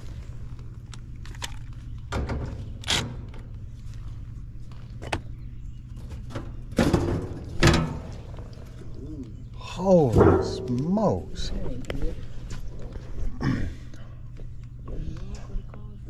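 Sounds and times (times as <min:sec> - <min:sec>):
low steady hum: 0:00.0 - 0:16.0
metal panel clunks: 0:10.1 - 0:10.9.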